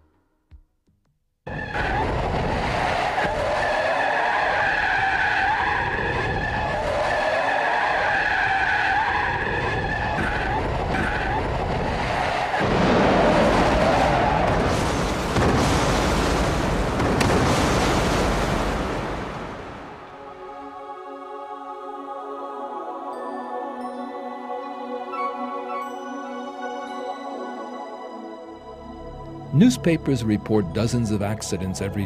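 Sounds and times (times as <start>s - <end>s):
car tyres squealing: 1.5s - 12.6s.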